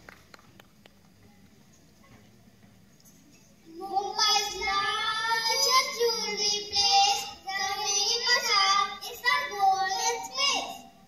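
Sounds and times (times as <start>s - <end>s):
child singing: 3.7s - 10.9s.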